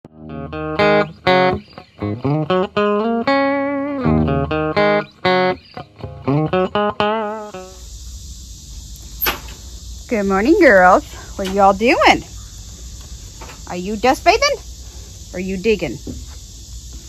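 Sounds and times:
guitar plucked notes: 0:00.0 - 0:07.8.

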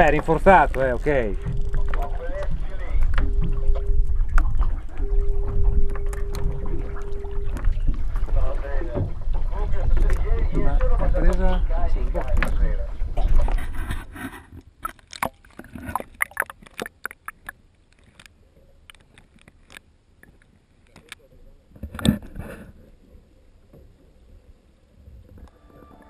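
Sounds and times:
water splashing and popping: 0:00.0 - 0:11.5, 0:12.1 - 0:21.2.

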